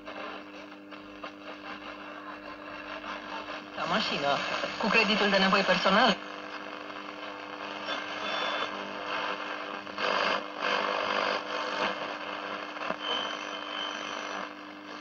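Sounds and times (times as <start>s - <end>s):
radio static and hiss: 0.0s - 15.0s
steady hum: 0.0s - 15.0s
high radio whistles: 7.4s - 15.0s.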